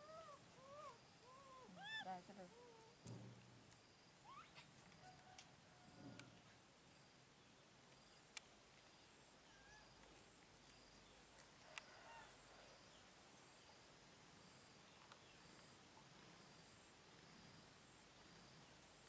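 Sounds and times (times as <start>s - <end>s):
soft chirps: 0.0s - 5.1s.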